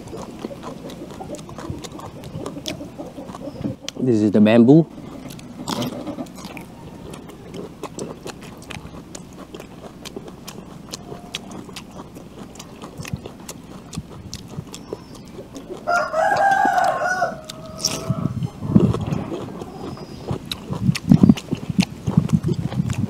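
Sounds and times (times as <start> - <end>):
crunching and chewing vegetables: 0.0 - 23.0
rooster crowing: 6.4 - 7.6, 10.9 - 11.8, 15.6 - 18.6.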